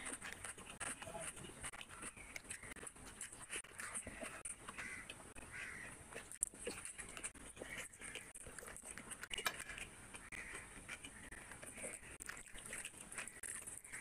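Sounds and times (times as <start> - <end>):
chewing and mouth sounds: 0.0 - 14.0.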